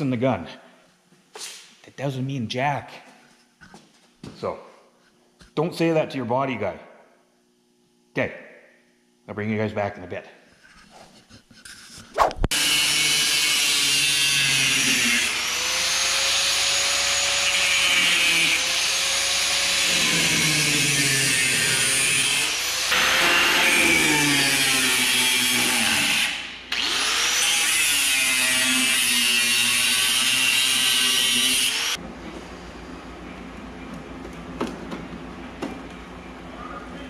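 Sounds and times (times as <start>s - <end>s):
power tool on sheet metal: 12.5s - 32.0s.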